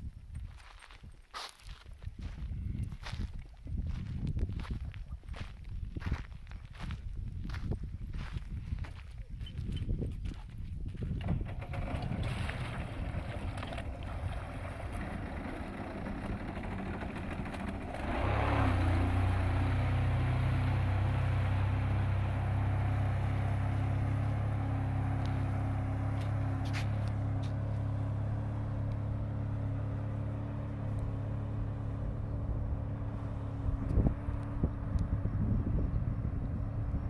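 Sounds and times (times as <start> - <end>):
jet boat engine: 11.2 - 37.0.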